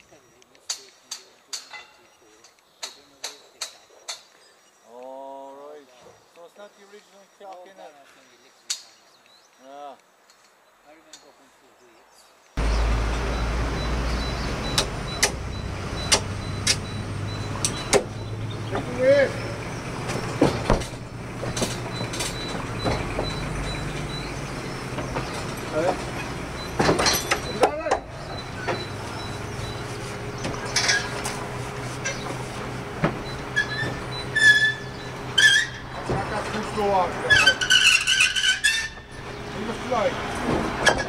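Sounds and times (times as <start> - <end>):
sharp knocks: 20.0 - 24.1
short high squeal: 33.5 - 36.0, 37.3 - 39.2.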